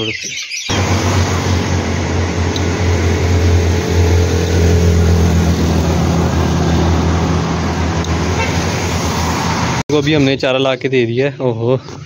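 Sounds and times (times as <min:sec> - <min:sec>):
vehicle engines humming: 0:00.7 - 0:09.9.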